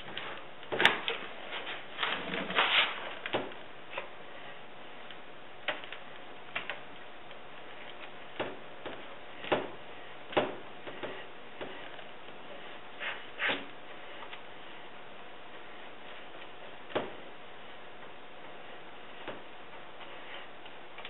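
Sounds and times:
scraping rustle: 0:00.0 - 0:03.4.

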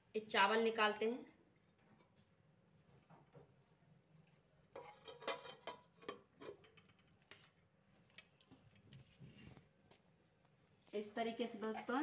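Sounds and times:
spoon clinking on steel dishes: 0:04.8 - 0:06.7.

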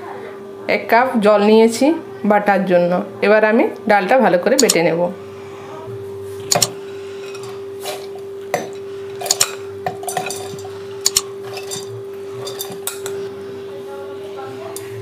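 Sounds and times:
metal spoon clinking on glass bowl: 0:04.6 - 0:04.8, 0:06.5 - 0:07.5, 0:08.6 - 0:13.2.

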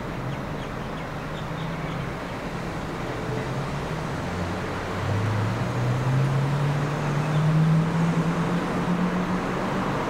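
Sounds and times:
traffic rumble: 0:00.0 - 0:10.0
vehicle engine accelerating: 0:03.6 - 0:10.0.

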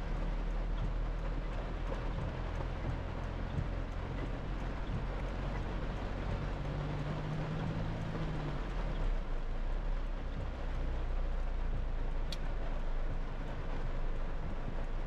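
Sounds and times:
car engine hum: 0:00.0 - 0:15.0
rain on car roof: 0:00.0 - 0:15.0
tyre noise on wet road: 0:00.0 - 0:15.0.

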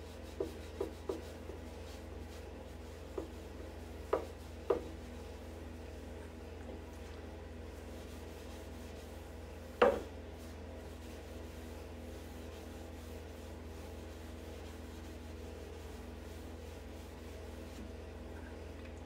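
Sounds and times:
cloth rubbing on wood: 0:00.0 - 0:18.1
sharp knock on wood: 0:09.8 - 0:10.1.

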